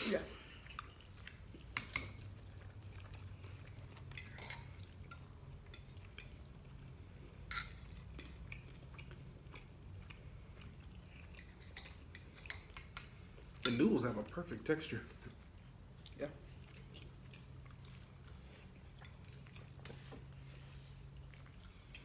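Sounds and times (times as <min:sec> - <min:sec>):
low steady hum: 0:00.0 - 0:22.0
soft chewing: 0:00.3 - 0:22.0
cutlery clicking on bowls: 0:01.7 - 0:02.2, 0:04.1 - 0:06.4, 0:11.3 - 0:13.8.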